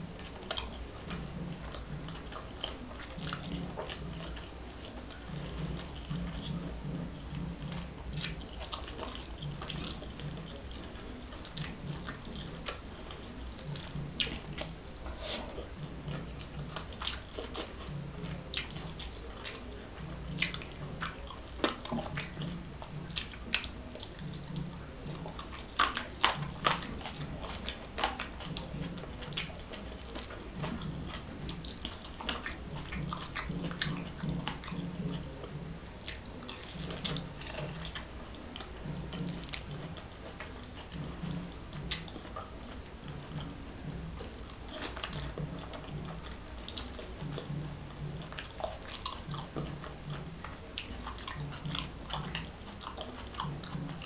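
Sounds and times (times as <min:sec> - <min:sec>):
chewing food: 0:00.0 - 0:54.0.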